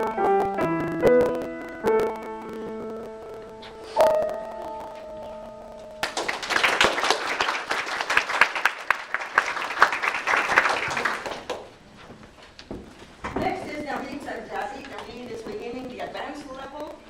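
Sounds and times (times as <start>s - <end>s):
piano chord ringing: 0.0s - 6.1s
audience clapping: 6.0s - 11.8s.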